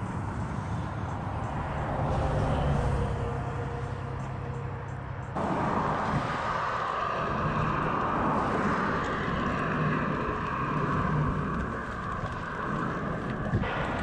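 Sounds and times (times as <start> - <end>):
bicycle tyres on asphalt: 0.0 - 14.0
wind on microphone: 5.4 - 14.0.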